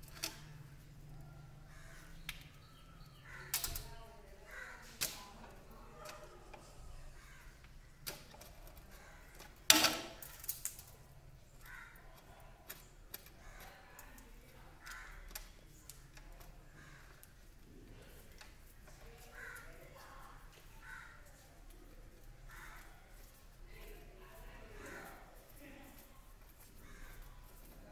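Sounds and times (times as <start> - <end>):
clicks and knocks of wires: 0.0 - 0.8, 3.3 - 6.7, 7.5 - 19.7.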